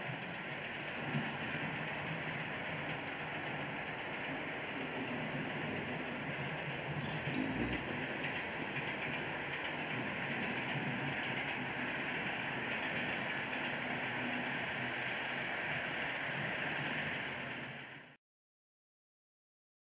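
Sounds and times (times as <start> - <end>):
model train wheels on rails: 0.0 - 18.2.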